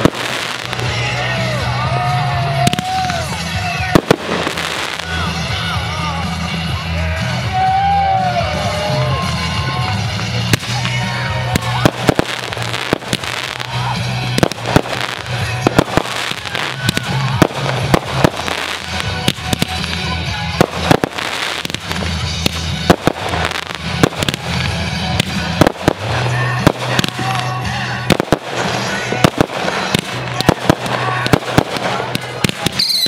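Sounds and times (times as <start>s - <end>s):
firework crackle: 0.0s - 6.7s, 8.0s - 33.0s
background music: 0.0s - 33.0s.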